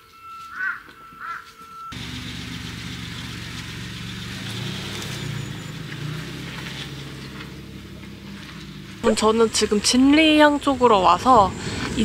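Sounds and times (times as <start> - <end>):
crow cawing: 0.5 - 1.5
car engine idling: 1.9 - 12.0.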